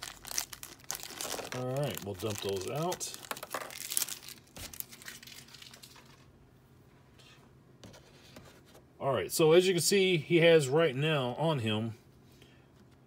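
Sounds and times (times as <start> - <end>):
plastic bag crinkling: 0.0 - 6.3.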